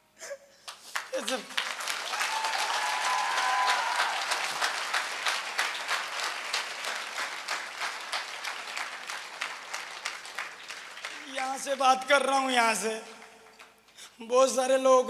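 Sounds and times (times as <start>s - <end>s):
audience applauding: 0.6s - 14.0s.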